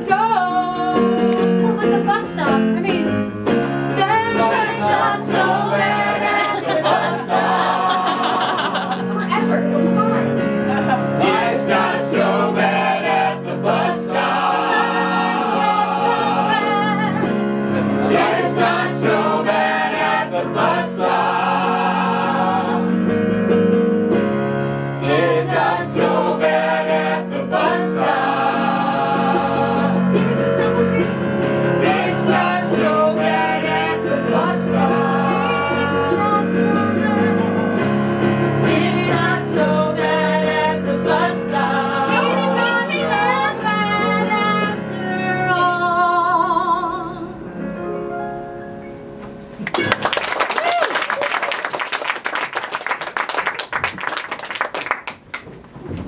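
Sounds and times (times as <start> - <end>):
keyboard: 0.0 - 50.0
people singing together: 3.7 - 9.3, 10.6 - 23.2, 25.0 - 47.2.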